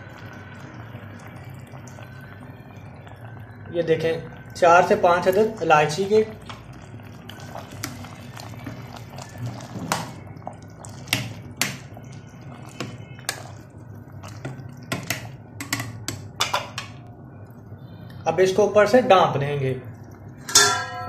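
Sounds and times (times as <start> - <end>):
syrup bubbling in saucepan: 0.0 - 20.6
spoon clinking against pan: 20.4 - 21.0.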